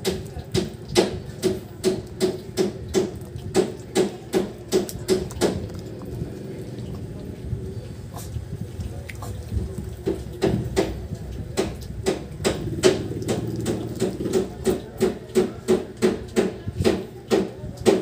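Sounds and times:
dog chewing and smacking: 4.9 - 7.4.

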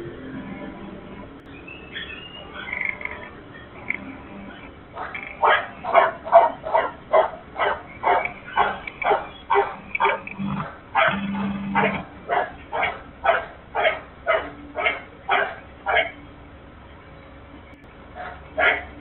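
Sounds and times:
dog barking: 4.5 - 16.2, 18.2 - 19.0.

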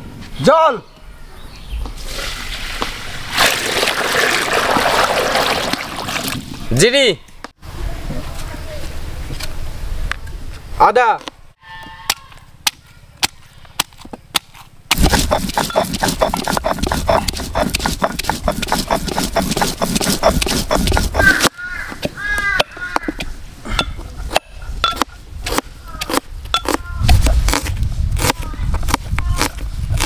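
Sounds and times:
stone grinding spices: 14.9 - 21.5.

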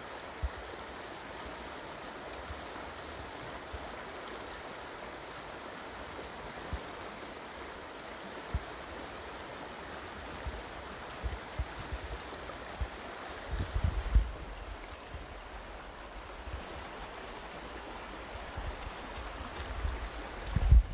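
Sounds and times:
river rushing over pebbles: 0.0 - 20.9
low thumps on microphone: 12.8 - 14.5, 19.7 - 20.9.

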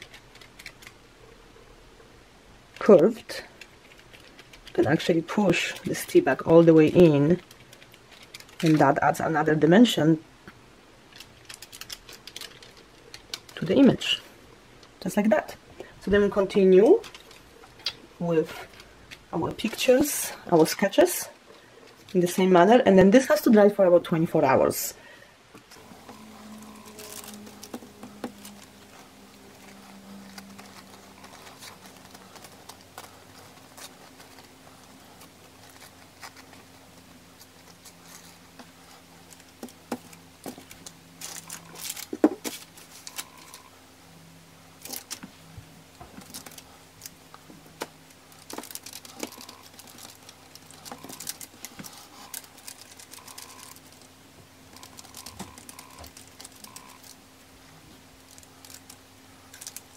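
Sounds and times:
plastic liner crinkling: 2.8 - 9.3, 11.1 - 14.1, 25.6 - 43.7, 44.8 - 57.2, 58.2 - 59.9.

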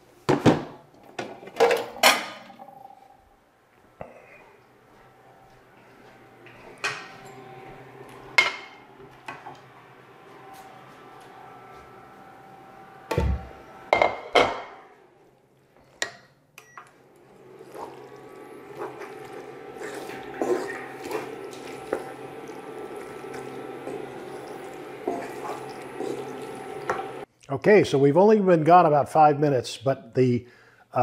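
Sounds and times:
steady hum: 2.0 - 14.3, 17.0 - 27.3.

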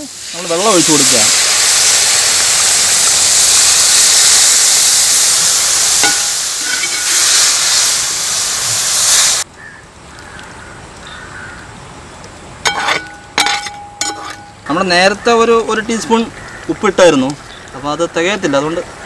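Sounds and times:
water sizzling in hot pot: 0.0 - 11.6, 12.2 - 15.0
metal ladle stirring pot: 12.6 - 14.7
ladle clinking against pot: 12.7 - 14.6.

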